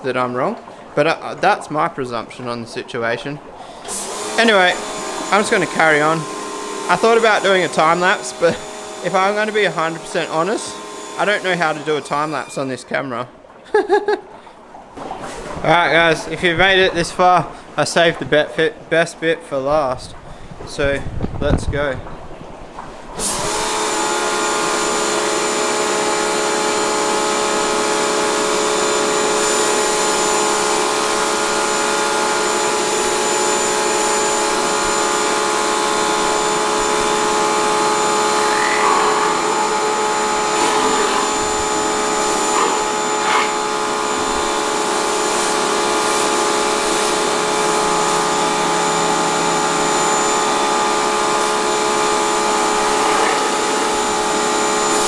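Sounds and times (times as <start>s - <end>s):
water jets hissing: 0.0s - 20.9s, 21.6s - 55.0s
pressure washer motor whine: 3.9s - 12.8s, 23.2s - 55.0s.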